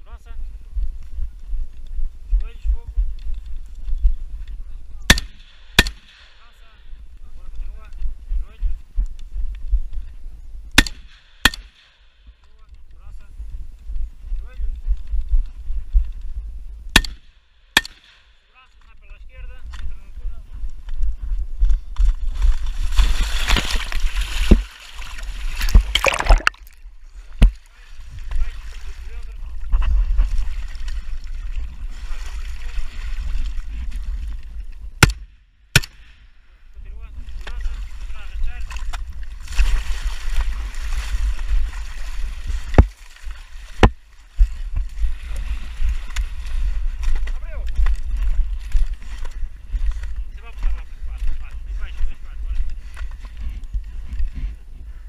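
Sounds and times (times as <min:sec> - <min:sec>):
wind rumble on microphone: 0:00.0 - 0:05.6, 0:06.4 - 0:10.8, 0:12.2 - 0:17.0, 0:18.8 - 0:26.0, 0:26.7 - 0:35.3, 0:36.6 - 0:55.0
sharp knock: 0:05.1 - 0:06.3
rifle shots: 0:05.1 - 0:06.4, 0:10.8 - 0:12.1
splashing through muddy water: 0:22.0 - 0:34.6, 0:37.2 - 0:50.1.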